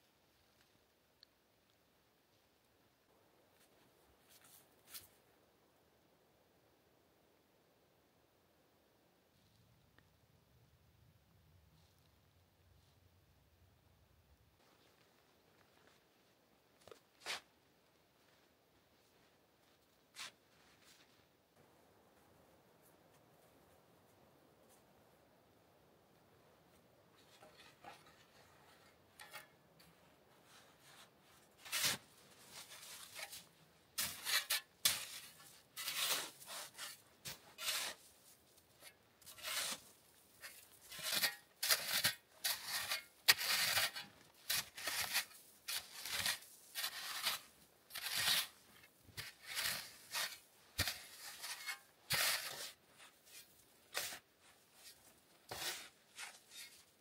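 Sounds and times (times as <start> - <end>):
snow shovel scraping snow: 30.4 - 57.0.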